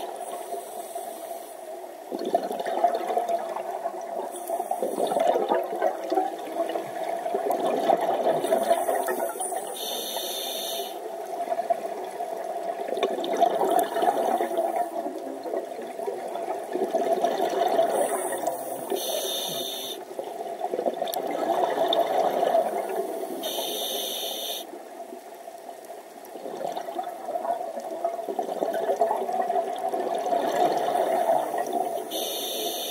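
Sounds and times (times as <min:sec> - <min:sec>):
exhaled bubbles rushing underwater: 0:02.0 - 0:09.7, 0:11.0 - 0:19.0, 0:20.1 - 0:23.2, 0:26.3 - 0:32.1.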